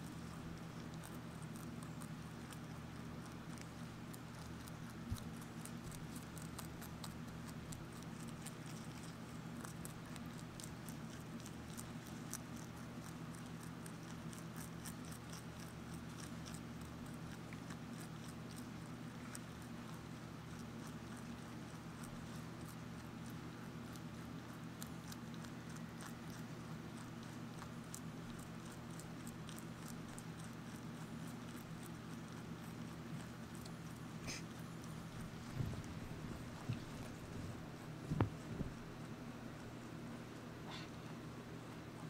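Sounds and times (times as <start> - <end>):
rabbit chewing crunchy leaves: 0.0 - 42.0
steady low hum: 0.0 - 42.0
soft thump: 38.0 - 38.8.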